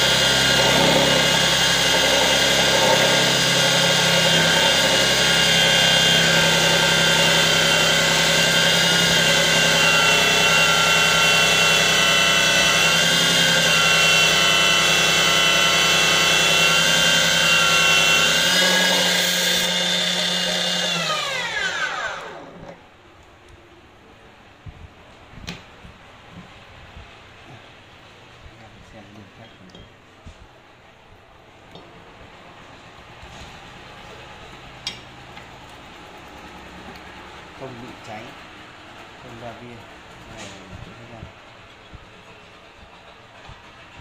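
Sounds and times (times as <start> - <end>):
cutoff saw whining: 0.0 - 22.9.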